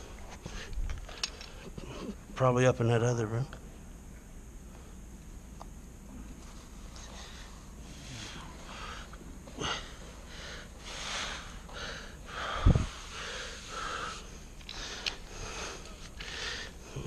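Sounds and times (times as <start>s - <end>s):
close breathing: 6.9s - 17.0s.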